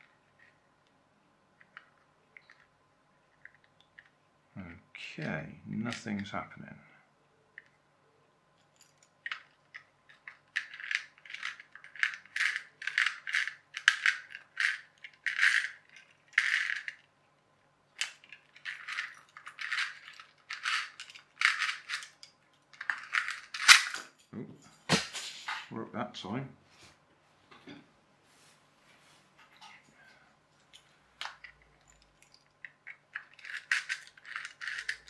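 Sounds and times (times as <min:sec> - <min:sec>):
plastic toy parts clicking: 0:08.7 - 0:17.1, 0:18.0 - 0:24.0, 0:31.2 - 0:35.0.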